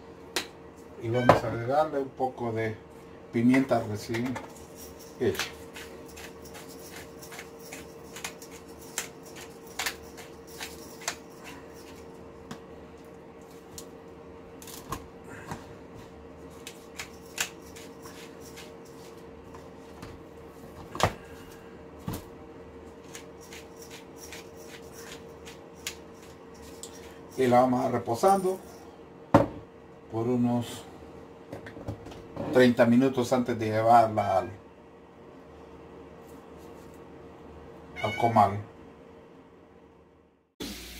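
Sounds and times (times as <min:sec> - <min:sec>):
faint hum: 0:00.0 - 0:40.9
pepper mill grinding: 0:04.1 - 0:12.1, 0:16.5 - 0:19.2, 0:23.0 - 0:27.5.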